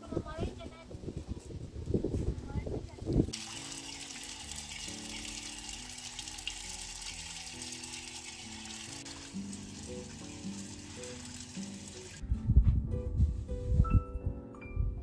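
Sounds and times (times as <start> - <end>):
soft background music: 0.0 - 15.0
water running into plastic bottles: 3.1 - 12.2.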